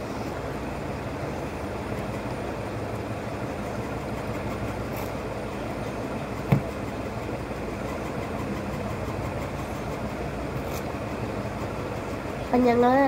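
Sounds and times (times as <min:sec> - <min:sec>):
sharp tap: 0:06.5 - 0:06.7.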